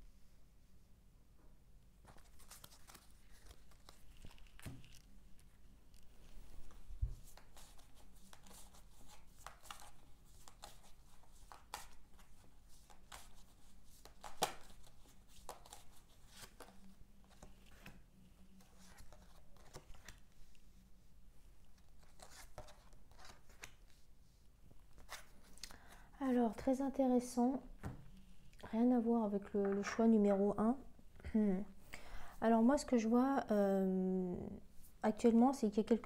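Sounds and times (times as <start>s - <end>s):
cards being shuffled: 2.0s - 18.0s, 18.6s - 20.3s, 21.8s - 24.0s.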